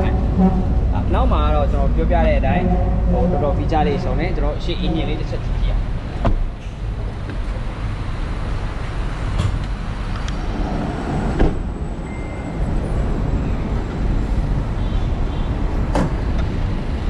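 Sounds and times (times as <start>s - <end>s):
traffic rumble: 0.0s - 17.0s
car door shutting: 6.2s - 6.6s, 11.3s - 11.6s.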